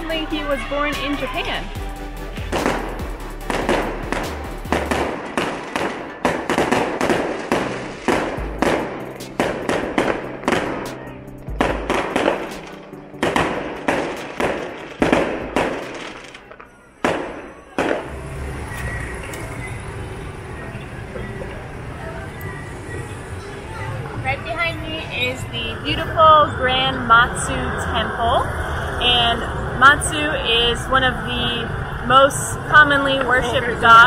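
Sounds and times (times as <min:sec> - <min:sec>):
music with ringing percussion: 0:00.0 - 0:05.9
steady background sound: 0:00.0 - 0:20.6.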